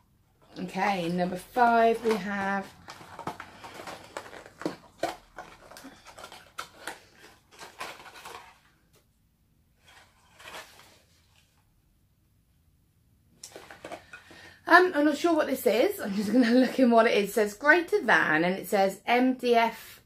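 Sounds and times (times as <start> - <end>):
cardboard box scrapes and rustles: 9.8 - 11.4.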